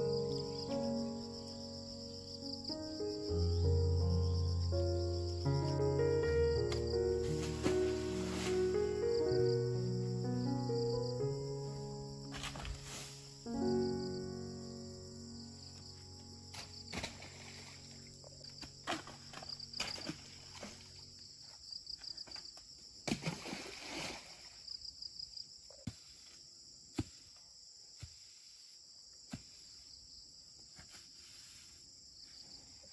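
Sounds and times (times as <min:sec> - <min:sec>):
background music: 0:00.0 - 0:21.0
insects chirring: 0:00.0 - 0:32.9
leaves rustling: 0:06.0 - 0:09.8, 0:12.2 - 0:13.5, 0:15.9 - 0:21.3
branches snapping: 0:16.5 - 0:17.7, 0:18.6 - 0:20.8.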